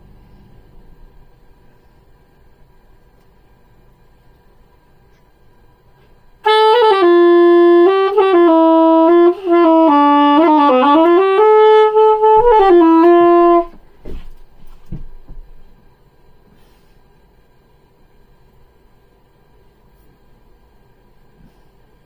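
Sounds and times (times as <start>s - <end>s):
soprano saxophone playing: 6.4s - 13.8s.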